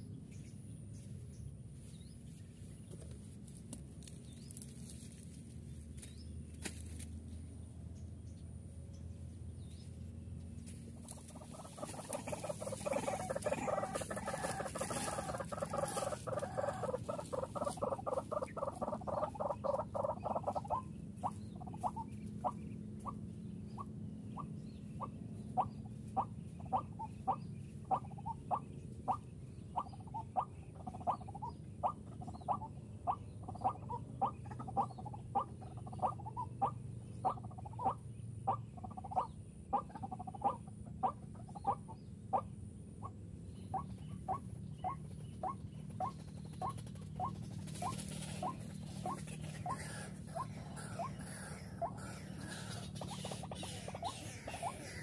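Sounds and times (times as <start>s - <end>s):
waterhen chattering call: 11.1s - 23.2s, 23.8s - 42.4s, 43.7s - 55.0s
short bird calls: 11.1s - 24.5s, 43.7s - 55.0s.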